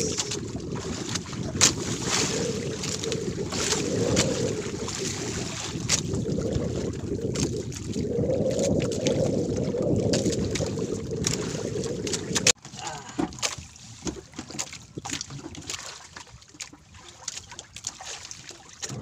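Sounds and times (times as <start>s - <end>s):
sharp clicks or splashes: 0.0s - 6.2s, 10.0s - 12.6s
wind buffeting microphone: 0.0s - 12.6s
water sloshing against boat hull: 0.0s - 19.0s.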